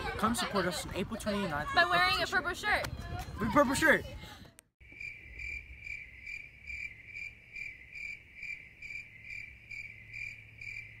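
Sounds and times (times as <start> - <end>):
crickets chirping: 4.8 - 11.0.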